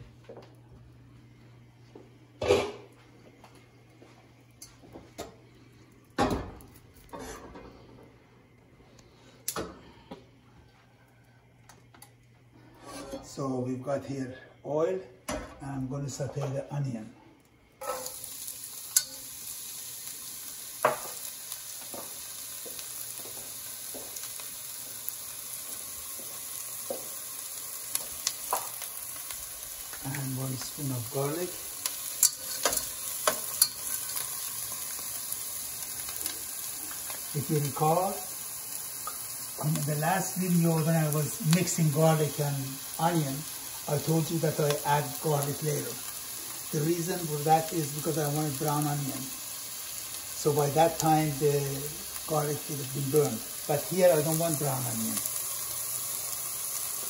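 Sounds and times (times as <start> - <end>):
onion sizzling in oil: 17.8 - 57.0.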